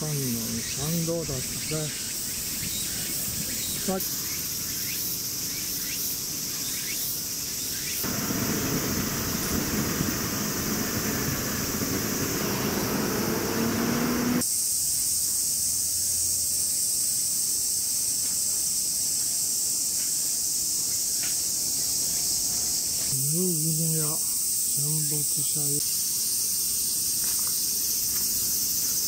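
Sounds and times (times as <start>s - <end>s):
cicadas buzzing: 0.0s - 29.0s
rising electric whine: 8.0s - 14.4s
rumble of traffic and trains: 8.0s - 14.5s.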